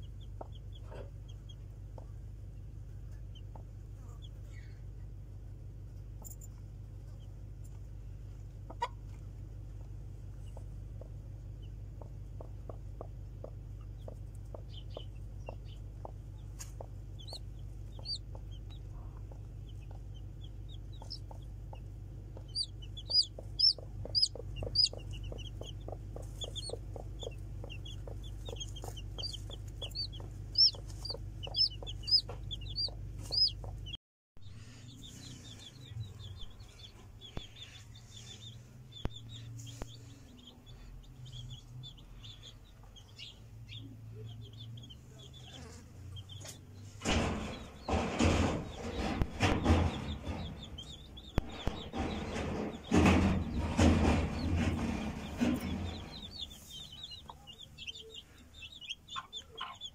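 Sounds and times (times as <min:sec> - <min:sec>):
chicks peeping: 0:00.0 - 0:05.2, 0:06.2 - 0:59.9
steady low hum: 0:00.0 - 0:59.9
regular ticking: 0:10.5 - 0:34.0.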